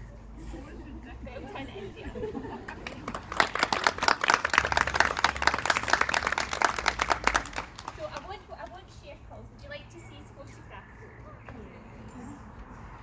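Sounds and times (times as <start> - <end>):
people clapping: 2.4 - 8.8.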